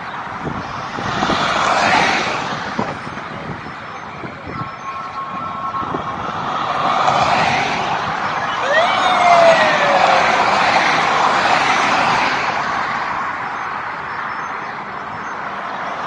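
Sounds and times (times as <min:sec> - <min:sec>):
vehicle traffic roar: 0:00.0 - 0:16.0.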